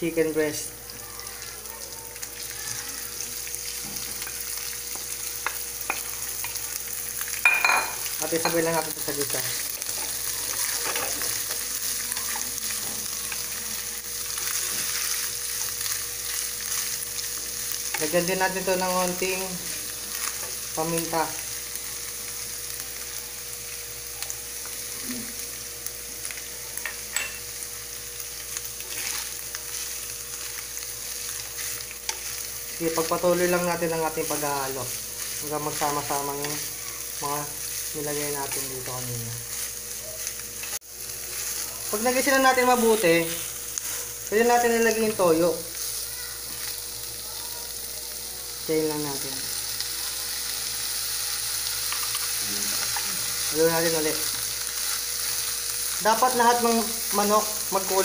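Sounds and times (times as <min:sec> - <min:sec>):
chicken sizzling in oil: 0:00.0 - 0:58.0
spoon tapping: 0:07.4 - 0:08.6, 0:26.8 - 0:27.5
wooden spoon scraping a pan: 0:28.8 - 0:29.4
oil crackling and popping: 0:49.8 - 0:56.2.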